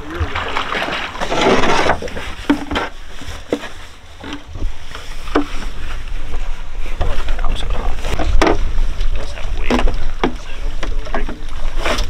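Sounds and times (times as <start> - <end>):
decoys clunking against boat: 8.1 - 12.0.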